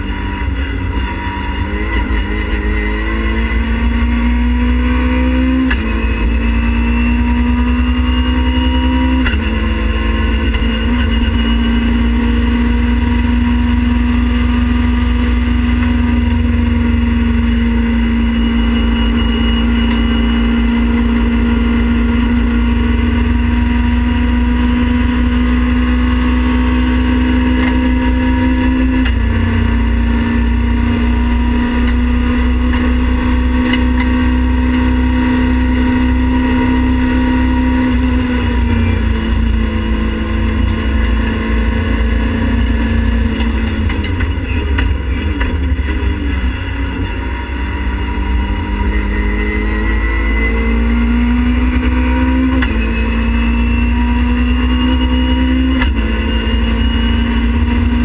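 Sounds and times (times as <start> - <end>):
race car engine accelerating: 0.0 - 58.0.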